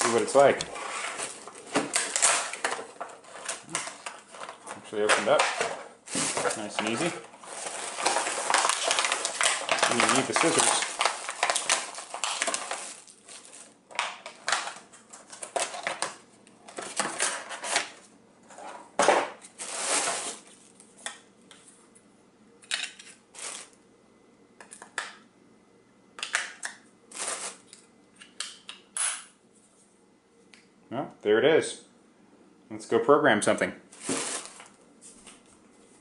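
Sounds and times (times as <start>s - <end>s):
plastic packaging crinkling: 0.0s - 18.0s, 19.5s - 20.9s, 23.3s - 23.8s, 27.1s - 27.8s, 34.0s - 34.8s.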